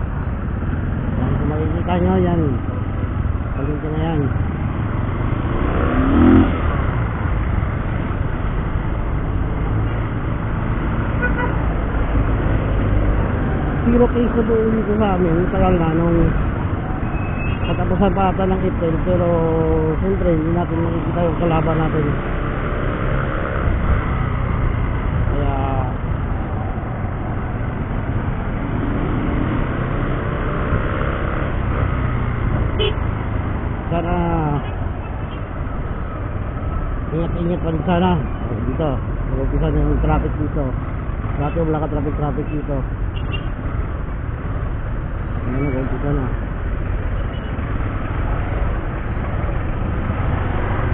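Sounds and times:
motorcycle engine drone: 0:00.0 - 0:17.7
wind and road noise: 0:00.0 - 0:50.9.

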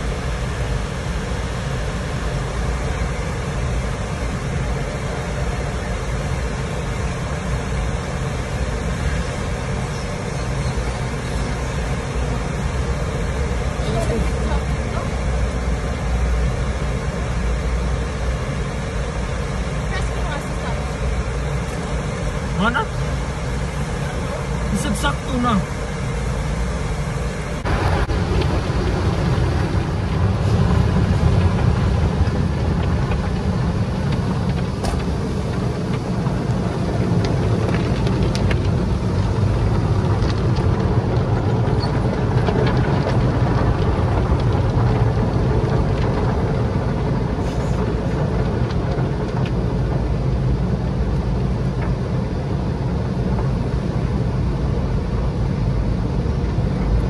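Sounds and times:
deep rumble: 0:00.0 - 0:57.0.

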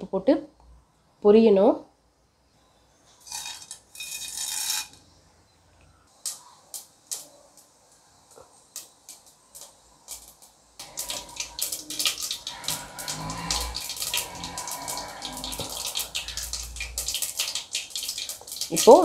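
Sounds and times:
seeds spluttering in hot oil: 0:03.2 - 0:04.9, 0:06.1 - 0:19.0.

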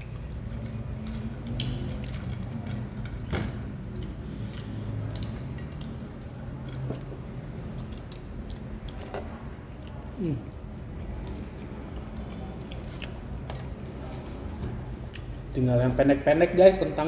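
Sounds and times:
steady low hum: 0:00.0 - 0:17.0
mouth noises eating: 0:07.8 - 0:15.4.

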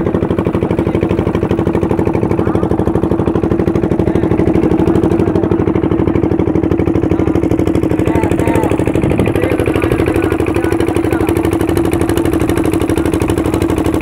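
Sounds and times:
boat engine chugging: 0:00.0 - 0:14.0.

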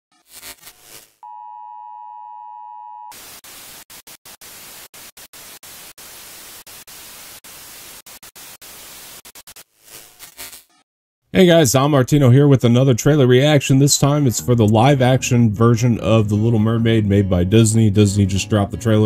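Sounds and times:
beep-like test tone: 0:01.2 - 0:03.1
loud static hiss: 0:03.2 - 0:10.7.

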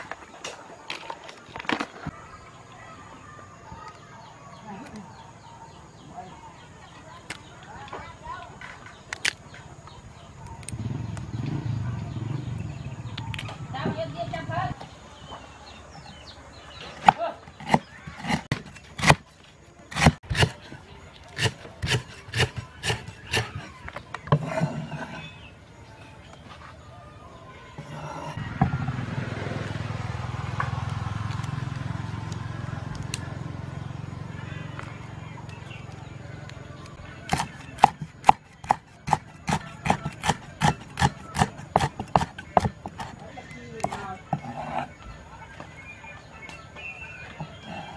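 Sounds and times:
cleaver chopping on wooden block: 0:17.0 - 0:19.2, 0:19.9 - 0:20.6, 0:21.4 - 0:23.6, 0:37.3 - 0:43.2.

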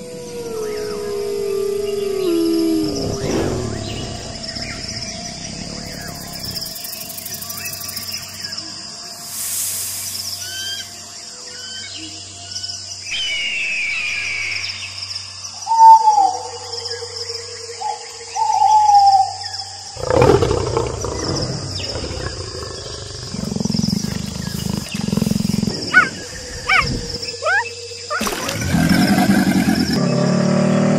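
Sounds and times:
long rough low animal sound: 0:00.0 - 0:07.7, 0:20.0 - 0:27.3, 0:28.2 - 0:30.9
high insect-like whine: 0:00.0 - 0:30.3.

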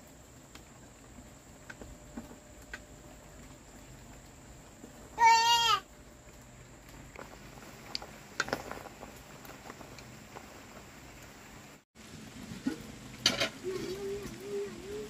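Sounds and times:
rain falling: 0:00.0 - 0:15.0
pot bubbling: 0:05.8 - 0:15.0.

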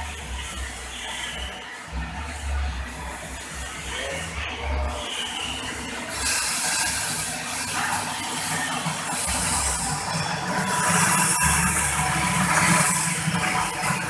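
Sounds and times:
coffee beans pouring: 0:06.1 - 0:14.0.

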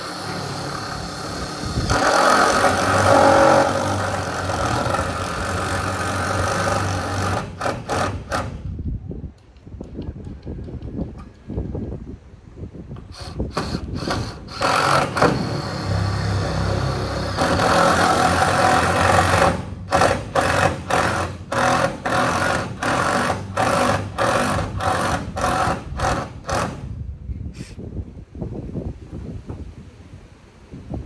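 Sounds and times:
power drill driving screws: 0:00.0 - 0:08.6, 0:13.1 - 0:26.8.

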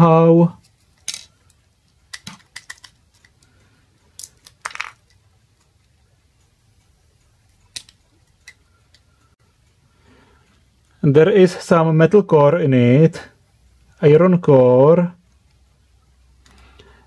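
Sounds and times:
plastic parts clicking and clacking: 0:00.6 - 0:05.7, 0:07.6 - 0:09.1.

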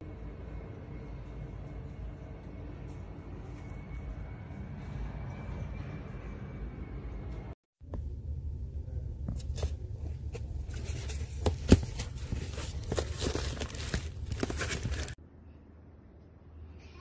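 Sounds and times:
plastic wrapping crinkling: 0:10.5 - 0:15.2.

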